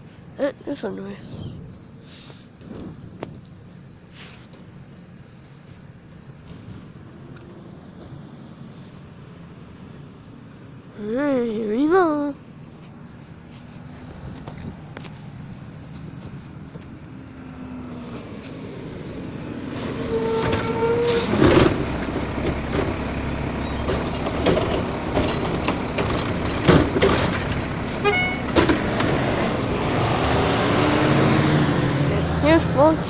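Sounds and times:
brief squeal: 18.1 - 21.5
garbage truck engine hissing: 18.3 - 33.0
metallic clanks and bangs: 19.8 - 29.2.

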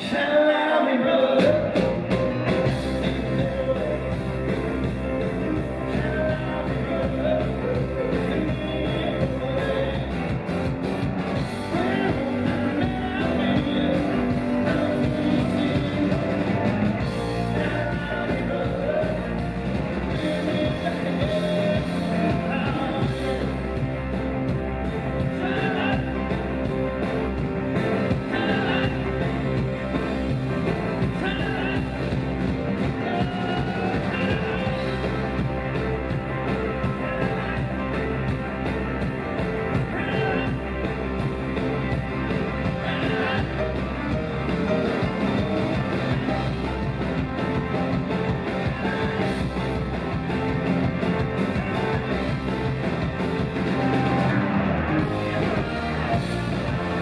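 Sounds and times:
bass guitar: 0.0 - 57.0
drums: 0.0 - 57.0
electric guitars: 0.0 - 57.0
keyboards: 0.0 - 57.0.

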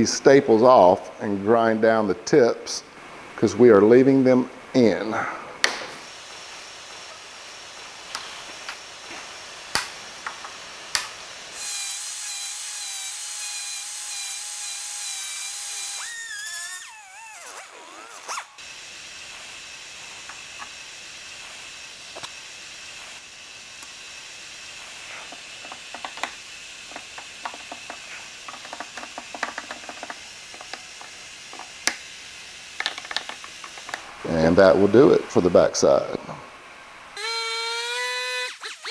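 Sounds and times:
die grinder whining: 11.5 - 34.0, 37.2 - 38.9.

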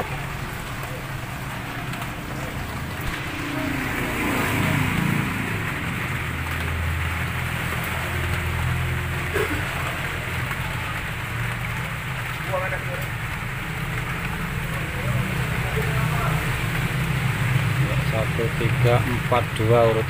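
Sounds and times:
steady rain falling: 0.0 - 20.0.

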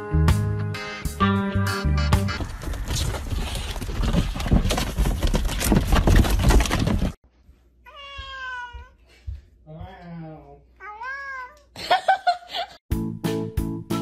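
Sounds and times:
rough rustling and clatter: 2.4 - 7.2
cat meowing: 7.9 - 8.9.

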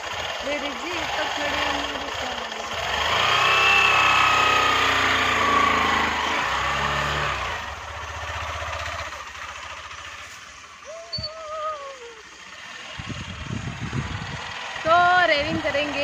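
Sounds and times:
motorcycle engine accelerating: 0.0 - 16.0.

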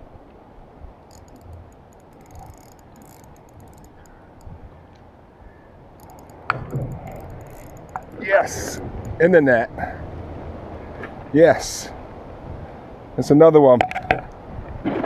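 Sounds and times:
steady low rush: 0.4 - 13.2
fishing reel clicking: 1.1 - 4.6, 6.0 - 9.3.

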